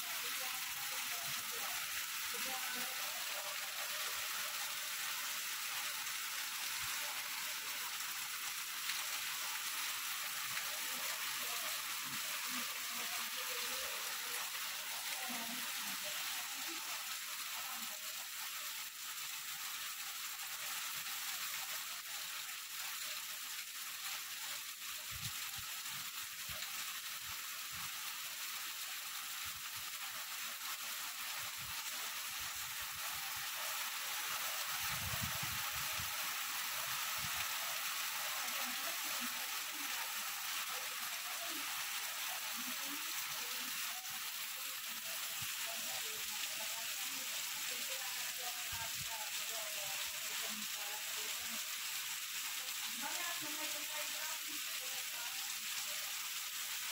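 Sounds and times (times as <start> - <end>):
heavy rain: 0.0 - 17.9, 30.9 - 45.9.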